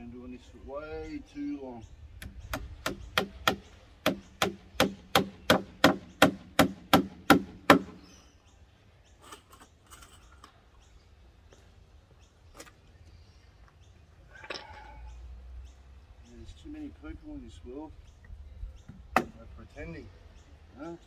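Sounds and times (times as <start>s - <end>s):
hammer striking wood: 2.2s - 8.0s, 18.9s - 19.4s.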